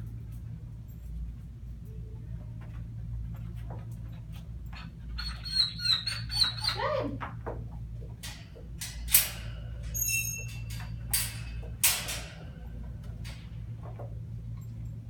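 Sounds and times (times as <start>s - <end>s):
steady low hum: 0.0s - 15.0s
wire gate clinking and rattling: 8.2s - 15.0s.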